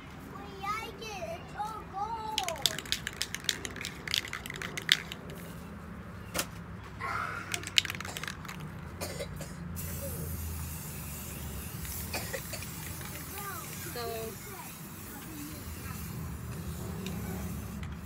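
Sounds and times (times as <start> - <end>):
spray can hissing: 2.4 - 5.5, 9.8 - 18.0
spray can ball rattling: 2.4 - 5.6, 7.5 - 9.1, 9.8 - 18.0.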